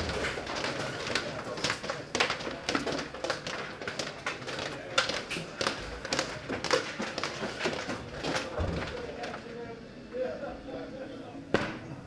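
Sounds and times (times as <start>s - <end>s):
footsteps on hard floor: 0.0s - 9.1s.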